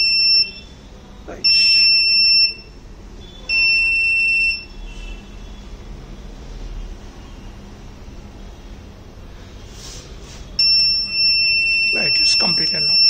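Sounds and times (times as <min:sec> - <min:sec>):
high-pitched buzzer beeps: 0:00.0 - 0:05.6, 0:10.6 - 0:13.0.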